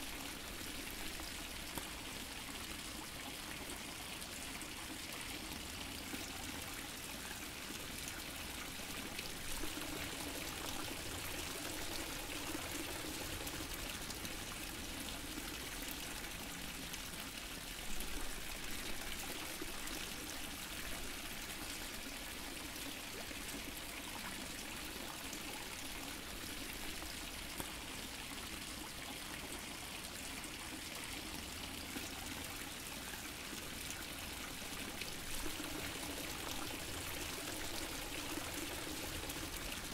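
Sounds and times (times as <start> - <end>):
water fountain splashing: 8.6 - 17.0, 33.6 - 39.9.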